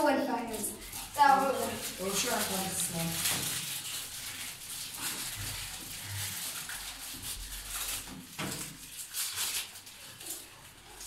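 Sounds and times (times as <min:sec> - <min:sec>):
plastic wrappers crinkling: 0:00.0 - 0:11.0.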